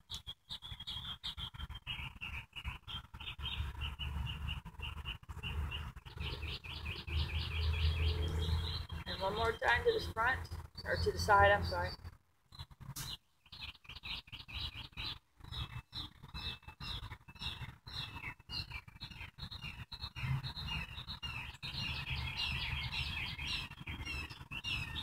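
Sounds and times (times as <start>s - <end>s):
small birds chirping: 0.0s - 25.0s.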